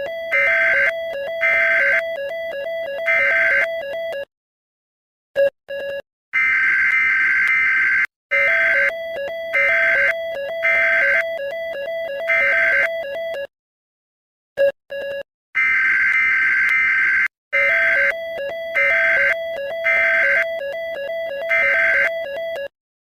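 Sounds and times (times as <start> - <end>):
harsh high alarm tone: 0.0 - 3.8, 6.4 - 13.0, 15.6 - 22.3.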